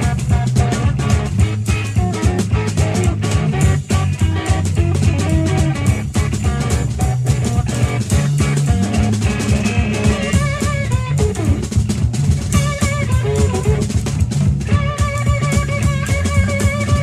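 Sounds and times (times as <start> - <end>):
second guitar: 0.0 - 17.0
slide guitar: 0.0 - 17.0
steady drum beat: 0.0 - 17.0.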